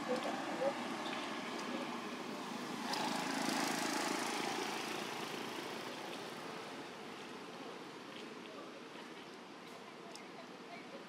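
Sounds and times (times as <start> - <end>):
vehicle engine passing by: 0.4 - 6.4.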